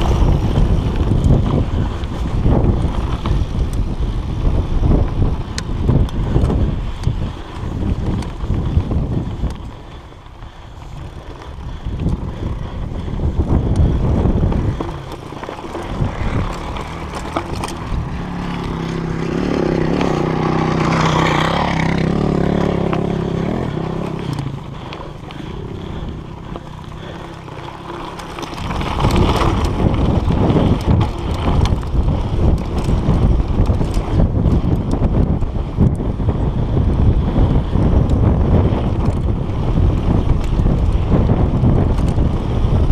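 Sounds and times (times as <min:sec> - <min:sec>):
bike rattling and knocking: 0:00.0 - 0:42.9
droning hum: 0:00.0 - 0:42.9
wind buffeting microphone: 0:00.0 - 0:42.9
tyres crunching over gravel: 0:13.3 - 0:34.2.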